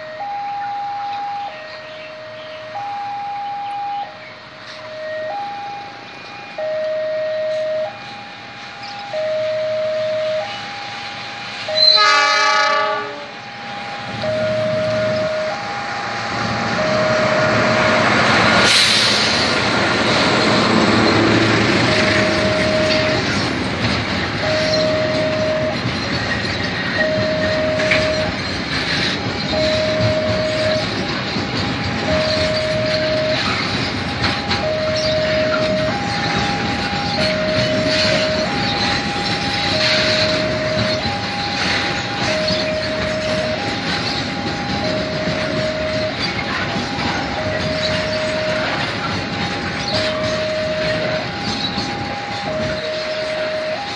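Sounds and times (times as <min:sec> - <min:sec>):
freight train passing: 0:00.0 - 0:53.9
two-tone crossing alarm: 0:00.0 - 0:53.9
wheels clicking over rails: 0:14.1 - 0:53.9.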